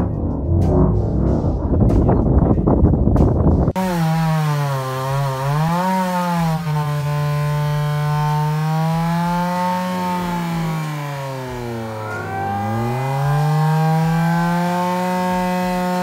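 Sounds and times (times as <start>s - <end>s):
background music: 0.0s - 3.8s, 8.7s - 16.0s
small engine running: 3.8s - 16.0s.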